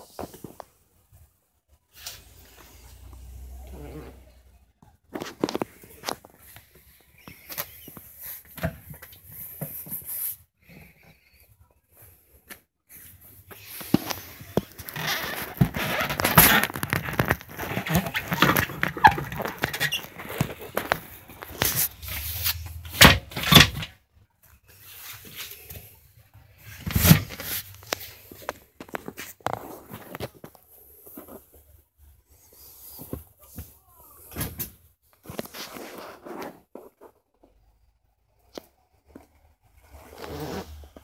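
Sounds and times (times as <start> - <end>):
vinyl cushions rustling and scraping: 12.9 - 23.9, 26.6 - 33.5, 35.2 - 37.2.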